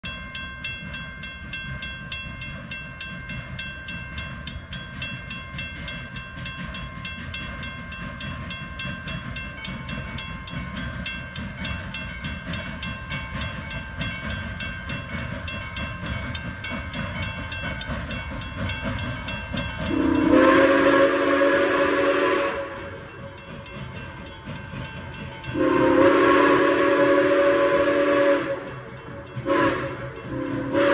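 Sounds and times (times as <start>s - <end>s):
crossing warning bell ringing: 0.0s - 30.9s
steam whistle blasts: 19.9s - 23.0s, 25.5s - 28.8s, 29.4s - 30.9s.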